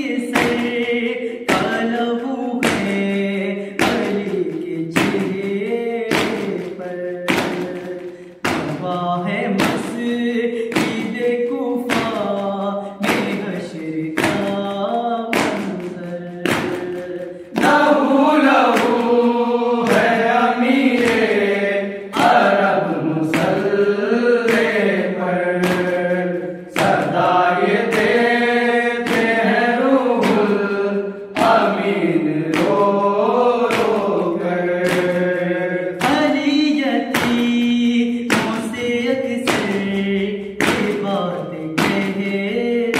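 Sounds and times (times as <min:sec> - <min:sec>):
hand strikes beat: 0:00.0 - 0:42.9
men chanting in unison: 0:16.5 - 0:42.9.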